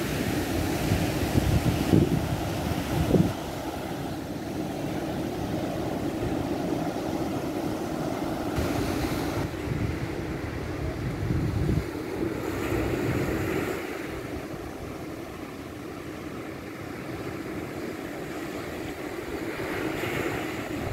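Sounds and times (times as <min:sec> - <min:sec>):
wind buffeting microphone: 0:00.0 - 0:15.1, 0:19.6 - 0:20.9
sea surf: 0:00.0 - 0:20.9.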